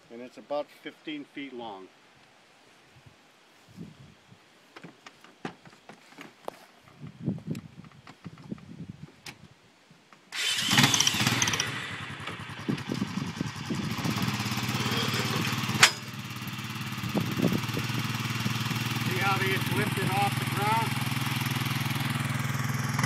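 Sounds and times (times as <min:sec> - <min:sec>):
quad bike engine starting and running: 0:10.3 - 0:23.0.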